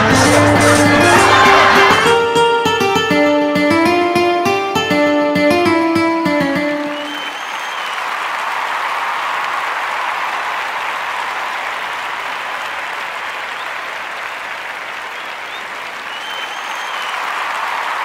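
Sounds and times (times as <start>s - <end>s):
crowd applauding: 0.0s - 2.2s, 5.7s - 18.0s
whistles: 6.9s - 8.1s, 13.5s - 13.8s, 15.1s - 17.4s.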